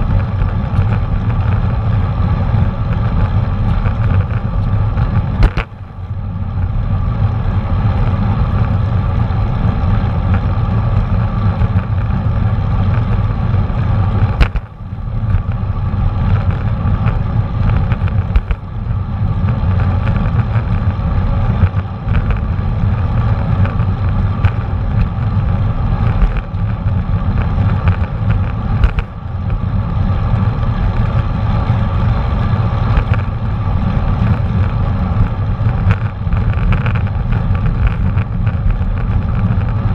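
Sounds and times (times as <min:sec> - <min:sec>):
bicycle road noise: 0:00.0 - 0:39.9
wind rush on microphone: 0:00.0 - 0:39.9
small knocks from bumps: 0:14.2 - 0:14.7, 0:26.0 - 0:29.6.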